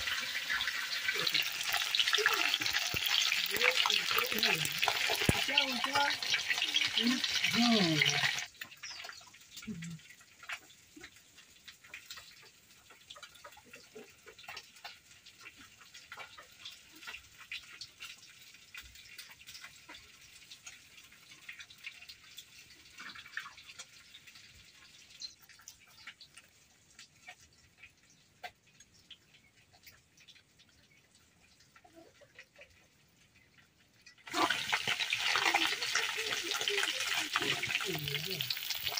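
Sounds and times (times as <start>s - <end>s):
light clicks and crackles: 8.4s - 34.3s.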